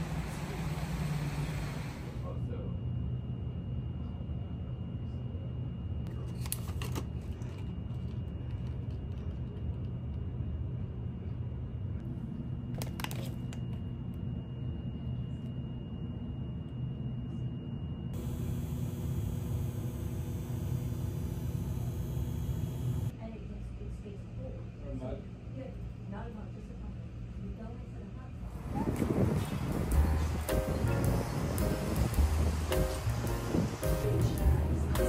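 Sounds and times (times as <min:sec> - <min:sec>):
office room noise rumble: 0:00.0 - 0:35.0
bright hiss: 0:28.6 - 0:35.0.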